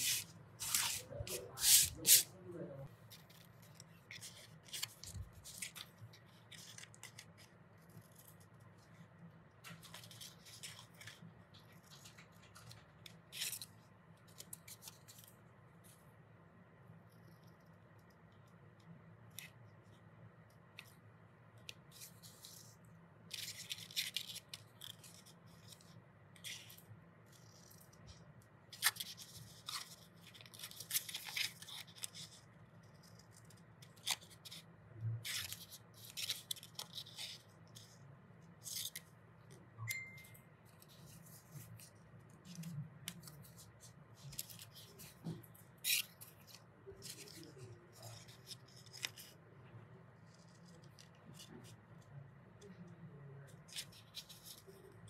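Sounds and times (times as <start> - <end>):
scissors snipping paper: 0.0 - 2.3, 3.1 - 8.4, 21.6 - 38.0, 40.7 - 49.4, 53.5 - 55.0.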